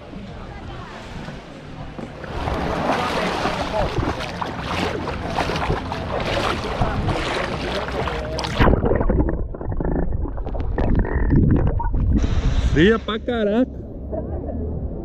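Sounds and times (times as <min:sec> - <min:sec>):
seawater splashing and sloshing: 0:01.0 - 0:11.2
low underwater rumble: 0:01.7 - 0:15.0
underwater bubbling: 0:02.3 - 0:12.8.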